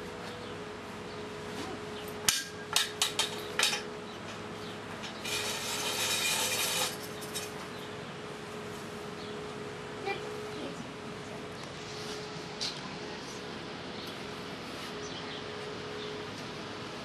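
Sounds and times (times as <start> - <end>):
bristles scraping across concrete: 4.6 - 7.8, 11.6 - 13.4
broom clattering on concrete: 5.0 - 7.7.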